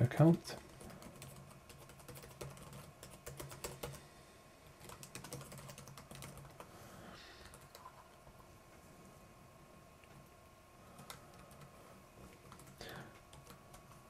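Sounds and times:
computer keyboard typing: 0.6 - 4.0, 4.8 - 6.7, 7.4 - 8.0, 10.9 - 14.0.

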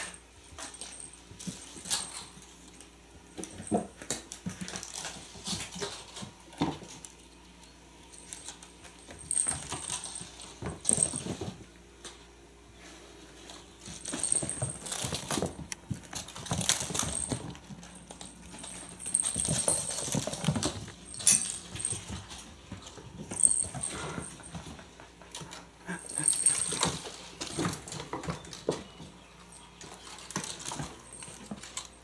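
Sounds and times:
kittens scampering on wooden floor: 0.0 - 7.3, 8.0 - 11.7, 12.9 - 32.0
small toys knocking and clattering: 13.9 - 22.3
high tinkles: 16.4 - 24.8, 25.8 - 31.9.

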